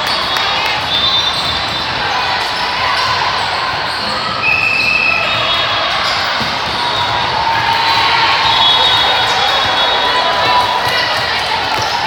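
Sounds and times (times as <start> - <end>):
hubbub of voices: 0.0 - 12.0
volleyballs bouncing and struck: 6.0 - 12.0.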